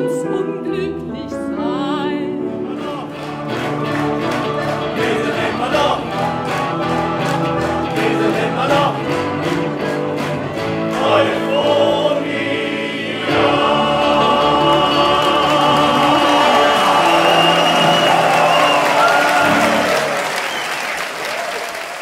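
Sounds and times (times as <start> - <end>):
band accompaniment: 2.5 - 21.0
men's choir singing: 2.7 - 10.1, 10.7 - 20.6.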